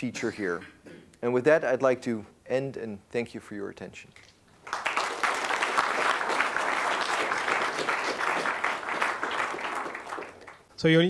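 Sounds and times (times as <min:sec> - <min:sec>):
audience applauding: 0:04.6 - 0:10.7.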